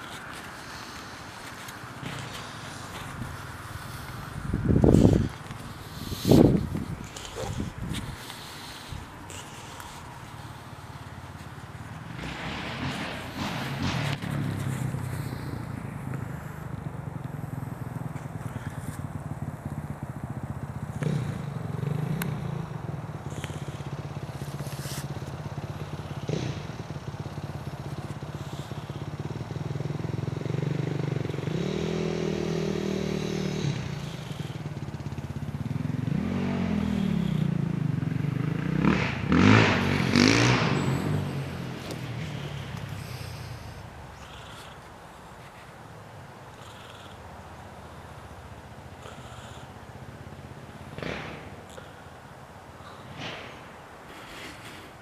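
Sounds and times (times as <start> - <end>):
leaves brushing microphone: 0.0 - 16.7, 23.3 - 25.4, 39.3 - 45.9
dirt bike engine revving: 2.0 - 16.8, 18.5 - 44.6, 50.8 - 51.9.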